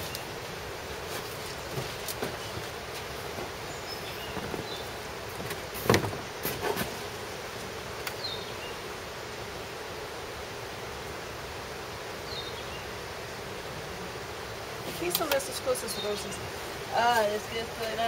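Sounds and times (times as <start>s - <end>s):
outdoor background hiss: 0.0s - 18.0s.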